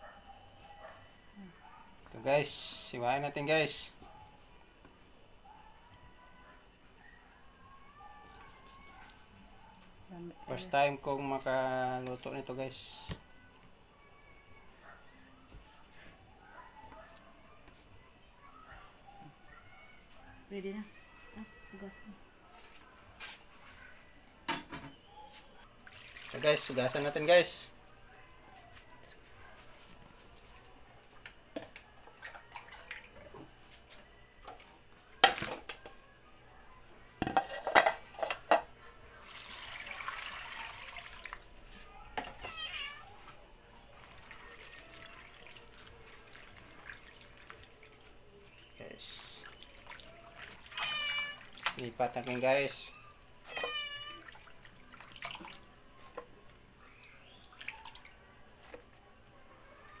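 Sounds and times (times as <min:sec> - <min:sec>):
plastic bowls knocking in sink: 0:37.2 - 0:38.7
tap water running into bowl: 0:39.2 - 0:41.4
cat meowing: 0:42.3 - 0:43.2, 0:50.6 - 0:51.6, 0:53.4 - 0:54.5.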